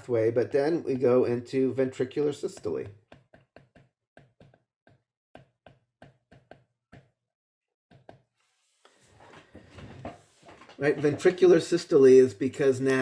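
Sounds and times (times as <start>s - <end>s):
stylus tapping on tablet screen: 2.4s - 7.2s, 7.9s - 8.3s.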